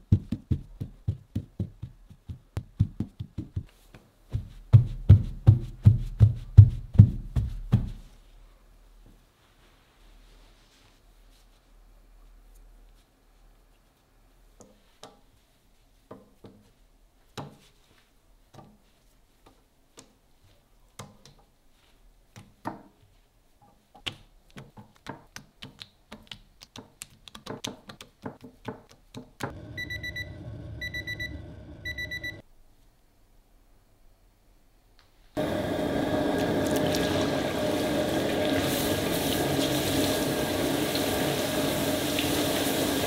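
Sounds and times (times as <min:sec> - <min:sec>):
thermometer alarm beeps: 0:29.6 - 0:32.4.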